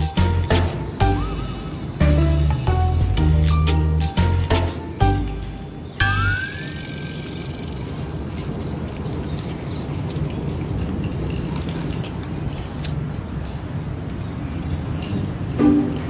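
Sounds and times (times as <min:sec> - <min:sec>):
short high chirps: 0:01.0 - 0:02.8.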